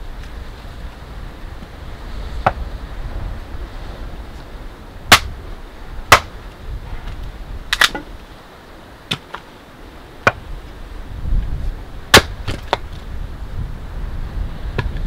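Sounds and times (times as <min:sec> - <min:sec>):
wood splitting cracks: 0:05.1 - 0:05.4, 0:06.1 - 0:06.4, 0:07.0 - 0:08.1, 0:09.1 - 0:09.5, 0:12.1 - 0:13.0.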